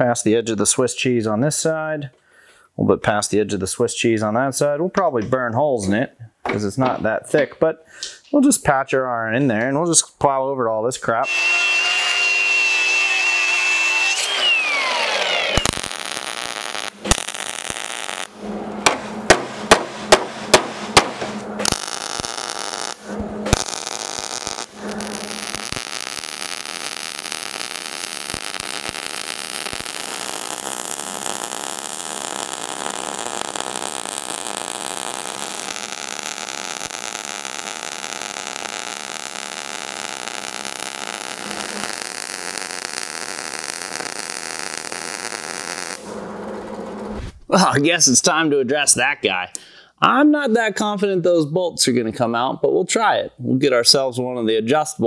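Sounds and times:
angle grinder cutting steel: 11.2 - 19.6, 21.2 - 47.1
welder arc crackling: 11.2 - 47.3
sharp knocks: 18.8 - 21.4.

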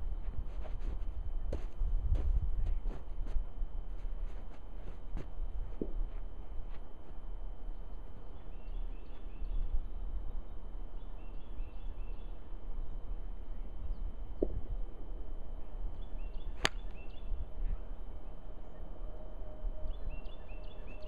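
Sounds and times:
wind rumble on microphone: 0.0 - 10.8, 12.7 - 21.0
golf club striking ball: 16.6 - 17.0.

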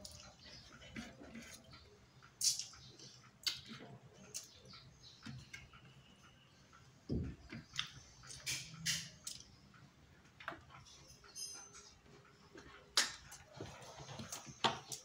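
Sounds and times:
person chewing: 0.0 - 4.6, 7.6 - 9.6.

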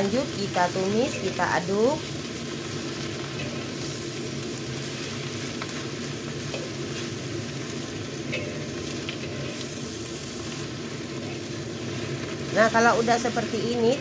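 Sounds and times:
leaves sizzling in a wok: 0.0 - 14.0
metal spatula scraping a wok: 3.2 - 4.0, 8.2 - 10.6.

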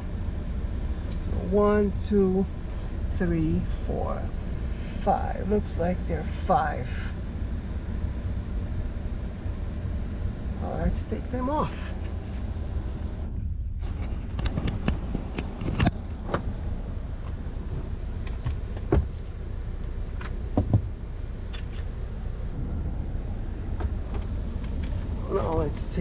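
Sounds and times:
low rumble: 0.0 - 26.0.

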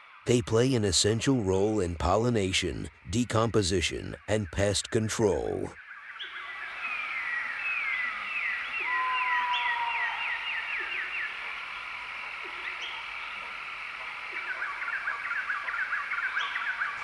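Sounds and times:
steady hiss: 0.0 - 5.7, 9.8 - 17.0.

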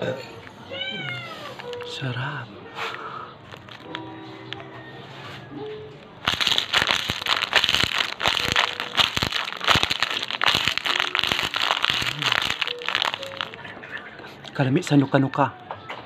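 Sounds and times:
wet crackly chewing: 3.4 - 4.0, 6.2 - 14.1.

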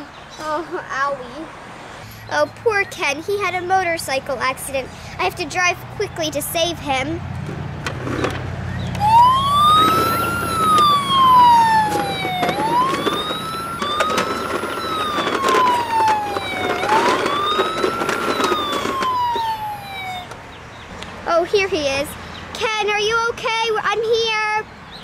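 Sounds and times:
toy ambulance siren wailing: 9.0 - 20.4.

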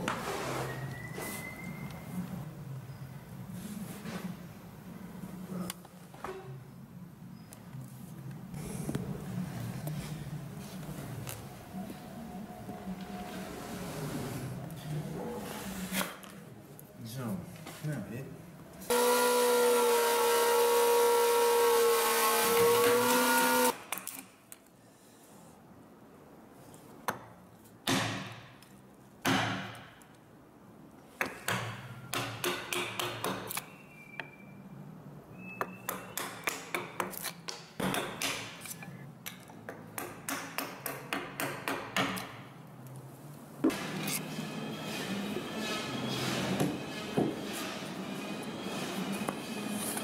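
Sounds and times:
power tool whining: 18.9 - 23.7.

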